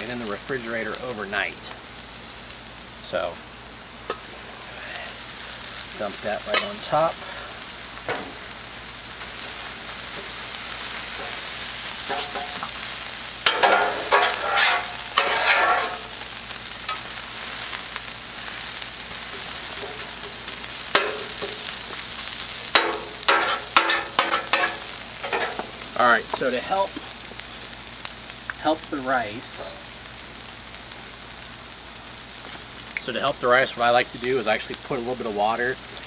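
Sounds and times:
food sizzling on a griddle: 0.0 - 36.0
metal spatulas scraping: 13.5 - 16.0, 22.8 - 25.6.

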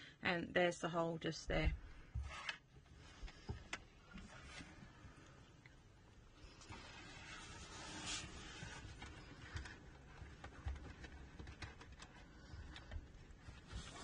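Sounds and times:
faint rubbing: 6.4 - 11.4, 12.0 - 14.0.

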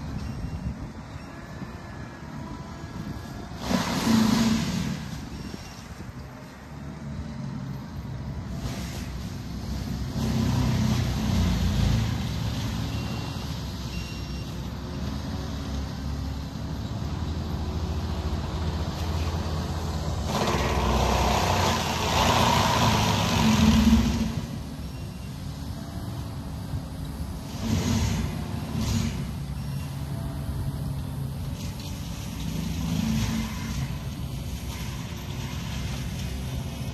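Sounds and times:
distant loader engine running: 0.0 - 36.9
harsh rushing mulcher sound: 3.3 - 5.7, 18.4 - 25.0.

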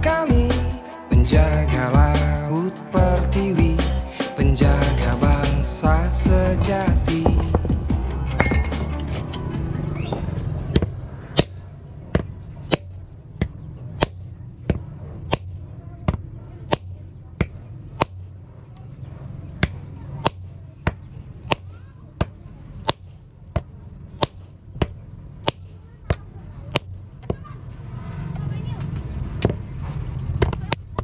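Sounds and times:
hammer striking steel rod: 6.6 - 9.4, 12.2 - 17.0.

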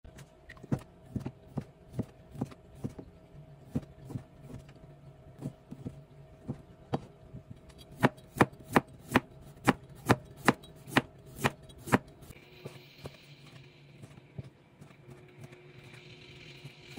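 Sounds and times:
faint steady hum: 0.1 - 16.9
knife chopping on plastic board: 7.9 - 12.0.

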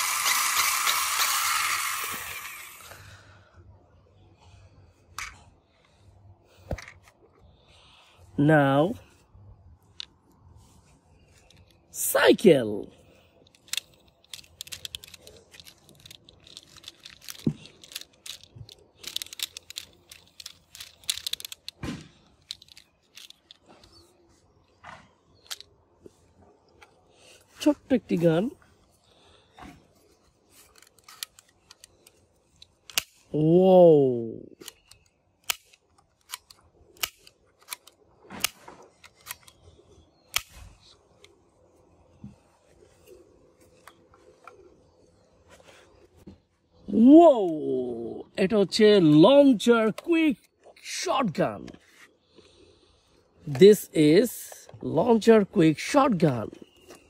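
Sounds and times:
plastic toy clicks and rattles: 0.0 - 2.8, 13.4 - 24.0, 25.4 - 25.7, 30.6 - 33.3.

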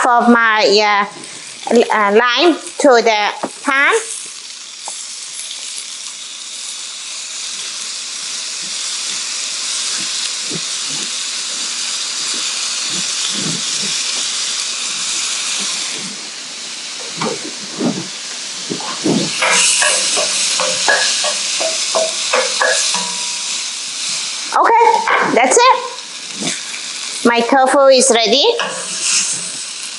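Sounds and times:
tofu sizzling in oil: 0.4 - 29.9
spatula scraping a pan: 18.7 - 24.3, 28.5 - 29.9.

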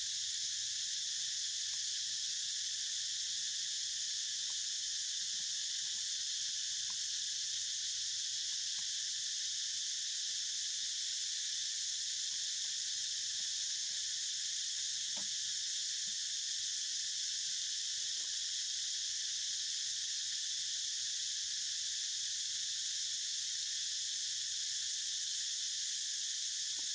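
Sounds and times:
insect chorus drone: 0.0 - 26.9
faint ticks: 1.6 - 2.0, 4.3 - 7.1, 8.4 - 9.0, 12.2 - 16.3, 26.7 - 26.9.

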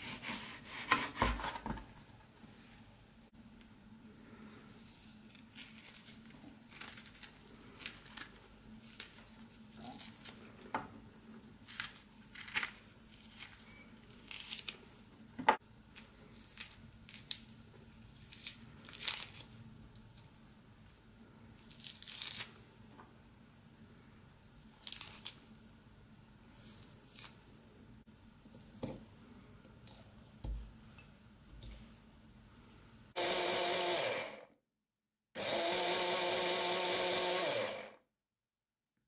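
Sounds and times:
peel tearing by hand: 14.2 - 14.8, 18.2 - 19.6, 21.6 - 22.6, 24.8 - 25.5.

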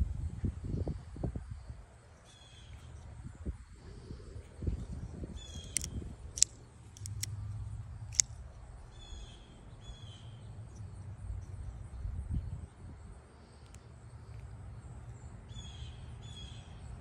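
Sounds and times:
folding knife clicking: 5.6 - 7.4.

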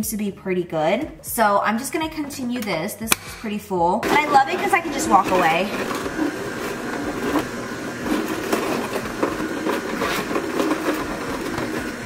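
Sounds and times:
juicer motor hum: 4.0 - 12.0.

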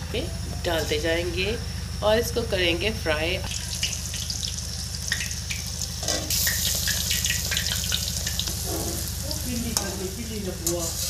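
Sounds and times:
steady low hum: 0.0 - 11.0
food deep-frying in oil: 3.5 - 11.0.

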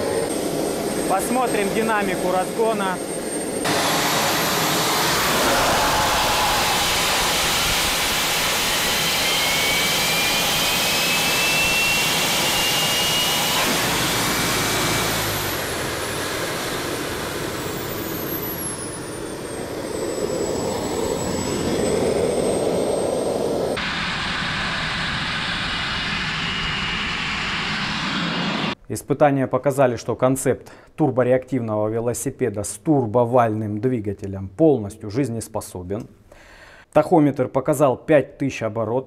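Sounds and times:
turbine spinning up tone: 0.0 - 28.8
turbojet engine roar and whine: 0.0 - 28.8.

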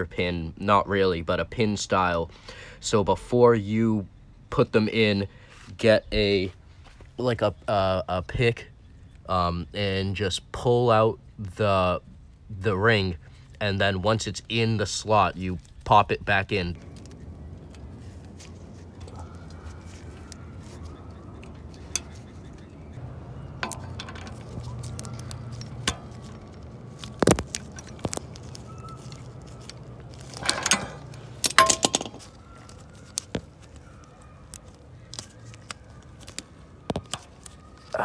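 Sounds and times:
low steady hum: 16.5 - 37.8
small metal clicks and clinks: 23.5 - 33.4.

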